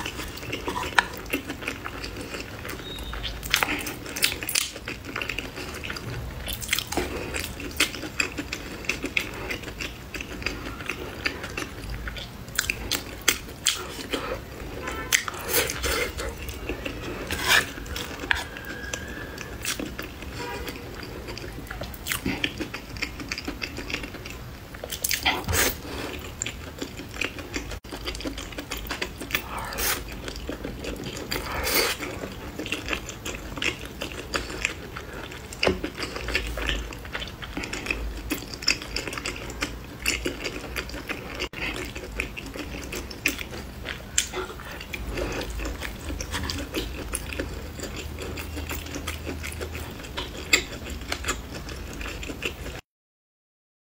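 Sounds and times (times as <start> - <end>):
wet chewing: 0.0 - 52.8
slurping: 12.6 - 21.3, 28.8 - 32.4.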